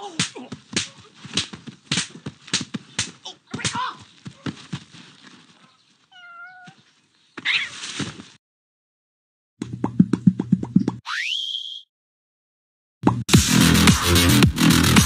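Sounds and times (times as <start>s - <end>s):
sharp slaps: 0.0s - 4.0s
cat meow: 6.1s - 6.8s.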